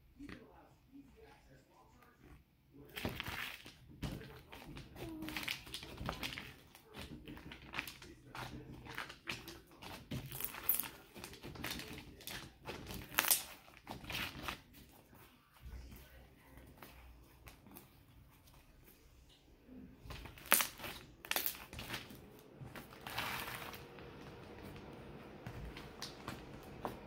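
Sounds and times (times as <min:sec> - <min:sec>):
slime crunching and squishing: 0:02.2 - 0:27.0.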